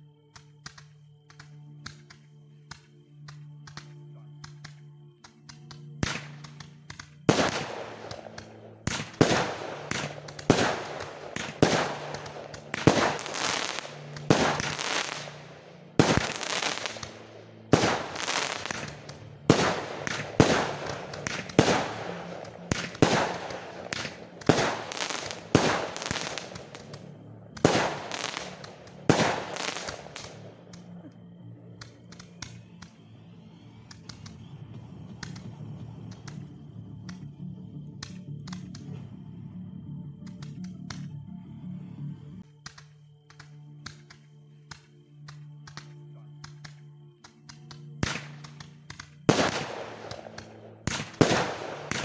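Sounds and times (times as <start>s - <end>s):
fireworks bangs: 7.3s - 30.6s, 49.3s - 52.0s.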